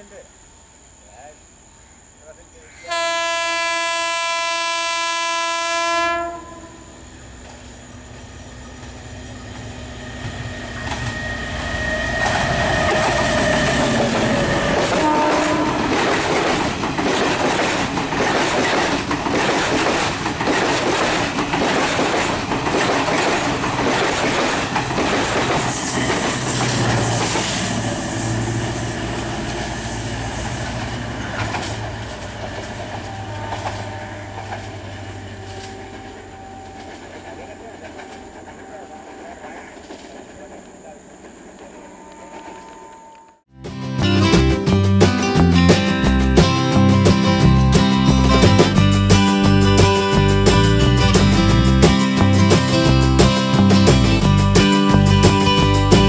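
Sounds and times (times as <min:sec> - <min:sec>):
train horn: 0:02.8 - 0:07.0, 0:11.0 - 0:16.1, 0:32.9 - 0:37.0
train wheels clattering over joints: 0:08.7 - 0:28.3, 0:30.3 - 0:42.6.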